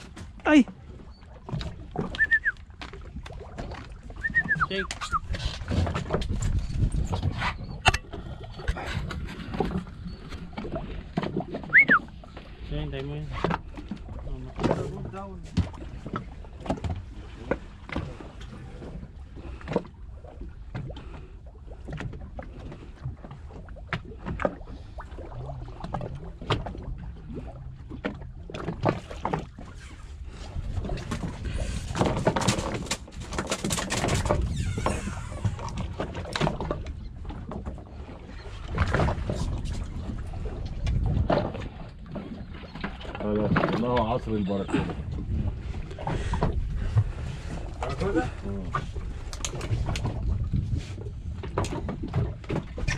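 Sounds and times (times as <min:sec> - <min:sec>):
water splashing and rushing: 0:00.0 - 0:52.9
water washing against boat: 0:00.0 - 0:52.9
fishing gear clicks and knocks: 0:32.0 - 0:34.5.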